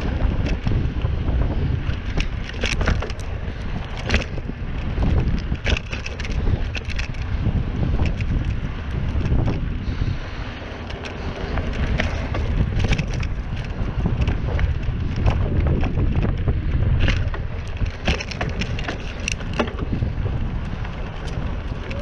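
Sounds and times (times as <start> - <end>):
bike tyres clicking on trail: 0.0 - 22.0
wind rumbling on microphone: 0.0 - 22.0.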